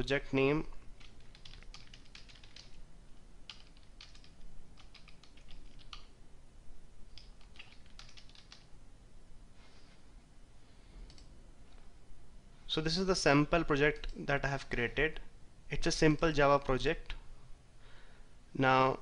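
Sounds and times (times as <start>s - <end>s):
faint keyboard typing: 0.9s - 2.8s, 3.4s - 6.1s, 7.1s - 8.7s, 11.0s - 11.9s, 13.8s - 14.2s.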